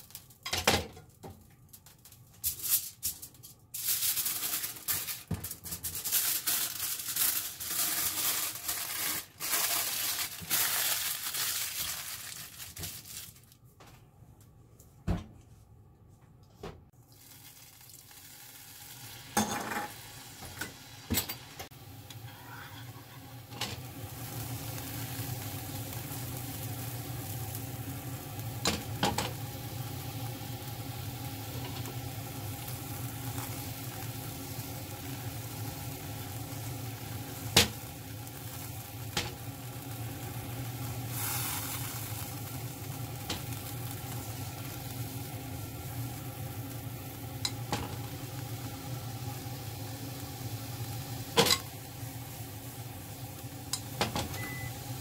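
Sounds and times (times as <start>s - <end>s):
wine sizzling in a frying pan: 0.0s - 0.8s, 3.8s - 13.4s, 17.0s - 55.0s
utensil scraping a pan: 22.2s - 23.3s.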